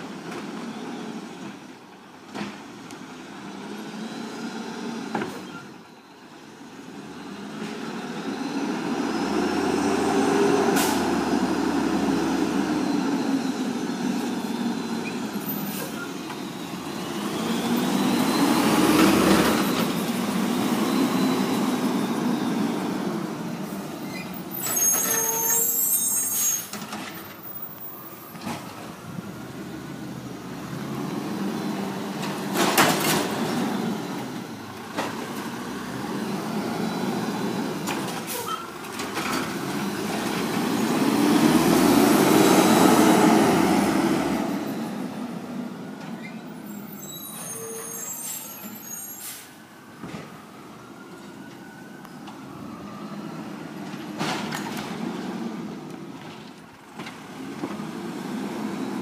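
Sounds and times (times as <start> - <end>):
diesel truck engine running: 6.9 - 15.0
air brakes hissing: 9.7 - 13.8, 15.1 - 16.6, 24.0 - 26.8, 38.2 - 38.7, 46.8 - 49.7.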